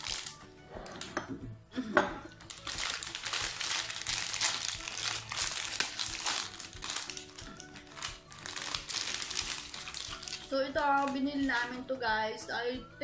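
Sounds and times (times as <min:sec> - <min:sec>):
plastic packaging crinkling: 0:00.0 - 0:00.4, 0:02.4 - 0:11.8.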